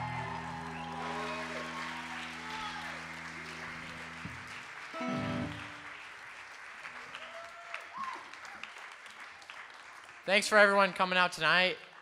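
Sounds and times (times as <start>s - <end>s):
audience applauding: 0.0s - 11.2s
amplified chord ringing: 0.1s - 6.0s.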